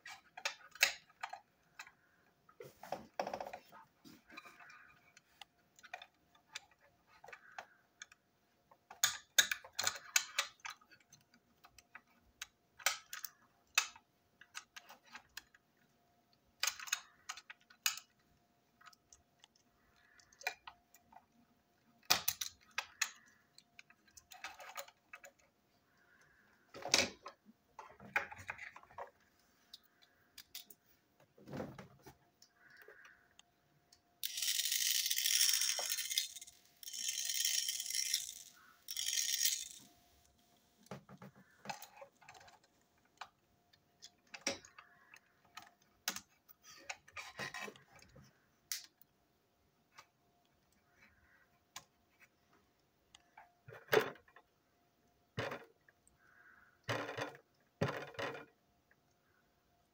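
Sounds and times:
plastic toy parts clicking: 0.0s - 2.3s, 4.4s - 30.8s, 32.4s - 40.0s, 41.5s - 49.1s.

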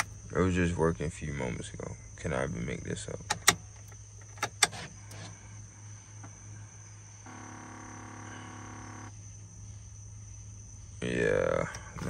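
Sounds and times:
crickets chirring: 0.0s - 12.0s
steady humming tone: 2.5s - 12.0s
gear-shift lever clicking: 3.3s - 5.3s, 11.7s - 12.0s.

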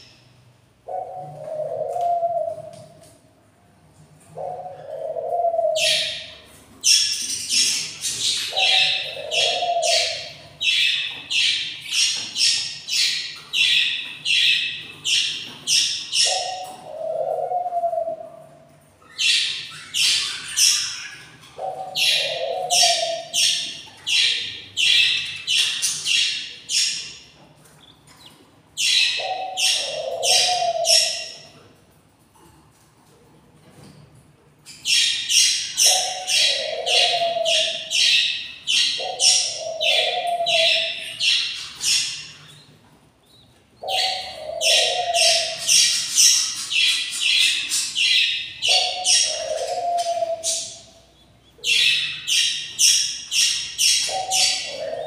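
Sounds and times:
budgerigar chicks chirping: 4.4s - 18.0s, 19.0s - 31.6s, 34.6s - 55.0s.

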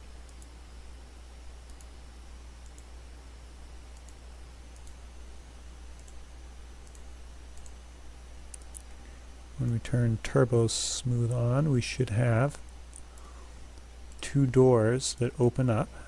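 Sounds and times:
faint microphone hiss: 0.0s - 16.0s
computer mouse buttons clicking: 6.0s - 6.2s, 6.8s - 7.8s, 8.5s - 9.0s.

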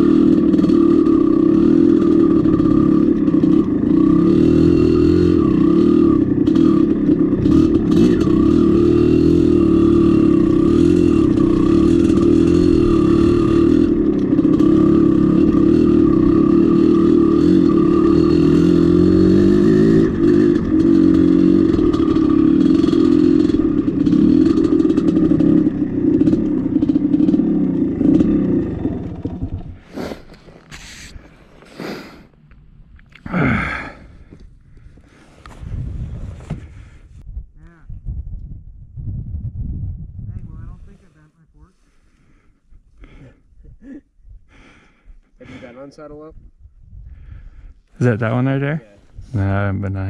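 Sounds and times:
dirt bike engine revving: 0.0s - 32.4s, 33.3s - 34.4s.

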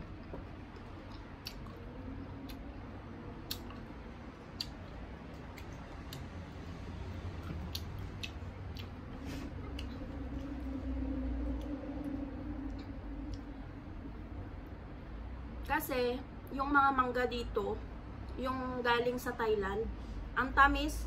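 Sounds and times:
person chewing crisp mango: 0.1s - 13.4s.

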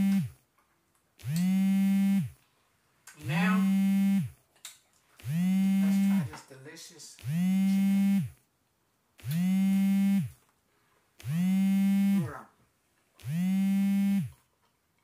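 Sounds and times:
buzzy humming tone: 0.0s - 0.4s, 1.2s - 2.4s, 3.3s - 4.4s, 5.2s - 6.3s, 7.2s - 8.4s, 9.2s - 10.4s, 11.2s - 12.4s, 13.2s - 14.3s.

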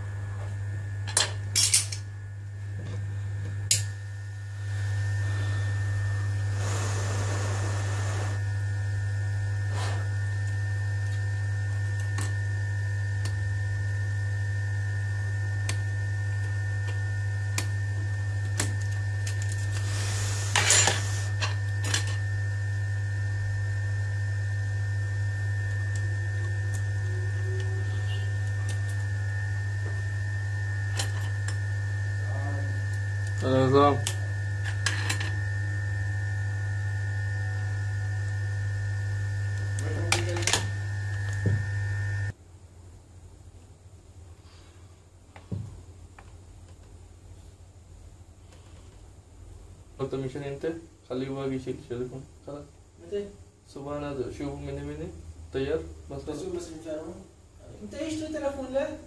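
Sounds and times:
low electrical hum: 0.0s - 59.0s.

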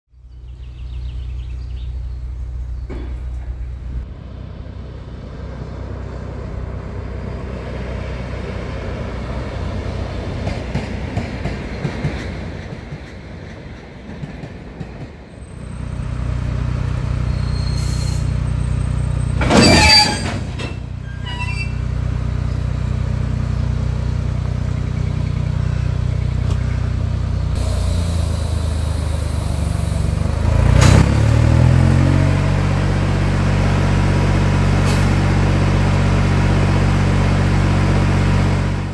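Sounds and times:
diesel locomotive engine humming: 0.1s - 38.9s
loud shrill squeal: 19.5s - 21.9s.

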